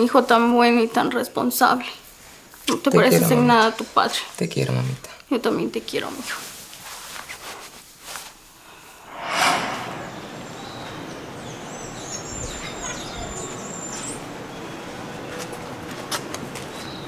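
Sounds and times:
outdoor background noise: 0.0s - 17.0s
whoosh: 8.9s - 11.4s
small birds chirping: 10.4s - 15.1s.

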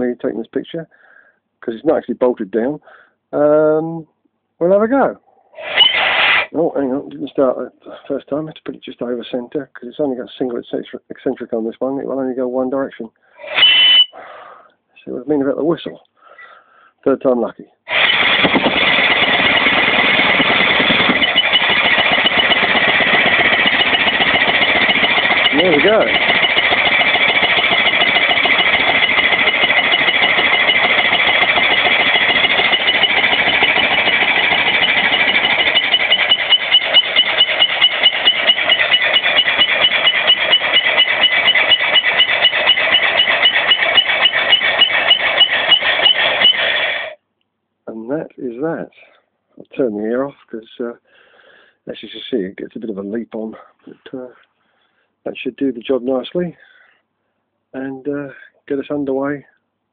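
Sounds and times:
steam engine running on air: 17.9s - 47.2s.

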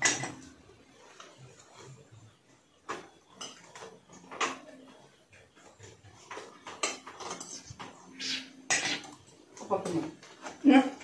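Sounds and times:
dishes and spoons clinking: 0.0s - 0.6s, 2.9s - 10.4s.

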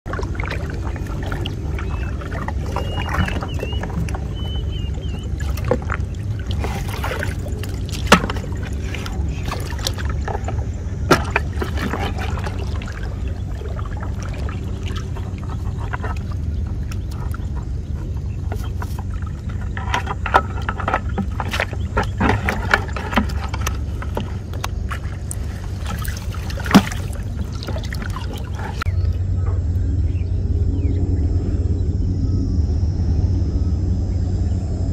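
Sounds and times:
steady low rumble: 0.0s - 34.9s
water splashing and dripping: 0.1s - 28.9s
sharp splashes or knocks: 5.4s - 15.4s, 21.2s - 28.8s.

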